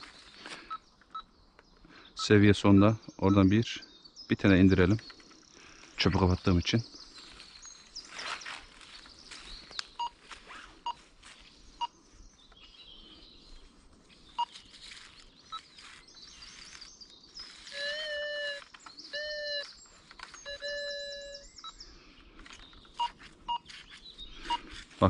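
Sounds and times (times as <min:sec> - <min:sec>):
faint bird chirps: 0:00.0 - 0:25.0
metal detector buzzy electronic tones: 0:17.6 - 0:19.8, 0:20.4 - 0:21.7.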